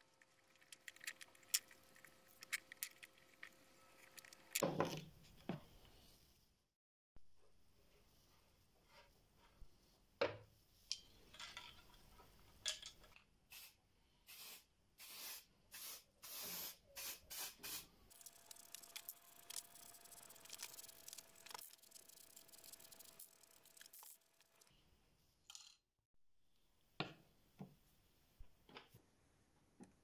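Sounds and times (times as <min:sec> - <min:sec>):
spray paint can hissing: 0:13.5 - 0:24.6.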